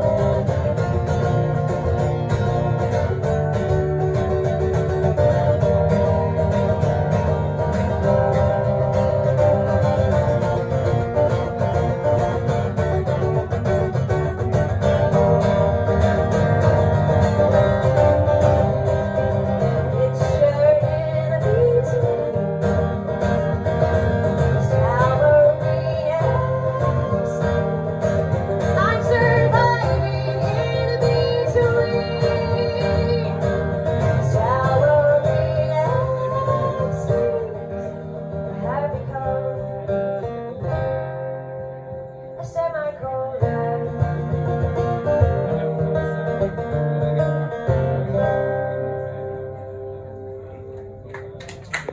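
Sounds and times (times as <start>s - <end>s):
acoustic guitar strummed: 0.0s - 51.9s.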